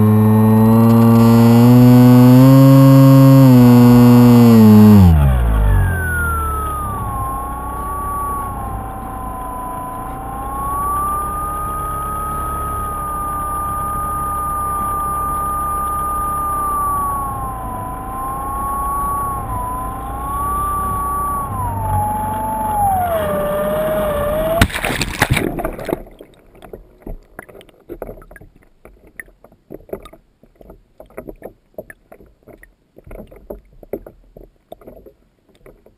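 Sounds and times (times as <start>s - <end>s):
model plane motor whining: 0.0s - 26.0s
loud splash on water: 24.6s - 26.1s
water slapping and gurgling: 24.6s - 35.9s.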